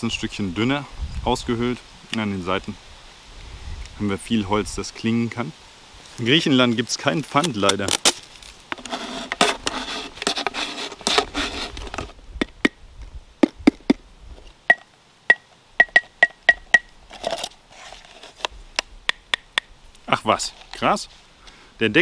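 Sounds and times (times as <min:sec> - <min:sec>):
handling and scraping noise: 0:06.0 - 0:12.2, 0:15.9 - 0:18.8, 0:20.0 - 0:21.3
wooden marimba bar tapped: 0:14.7 - 0:16.9.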